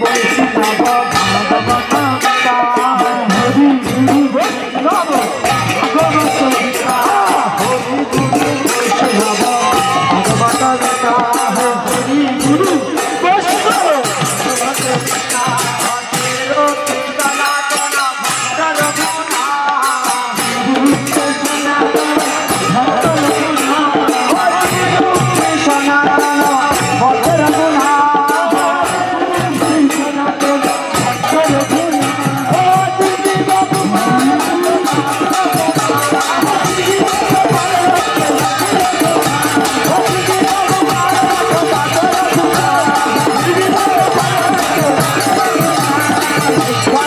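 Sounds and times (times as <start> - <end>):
drum: 0.0 - 47.0
hand cymbals: 0.0 - 47.0
voices chanting: 30.6 - 47.0.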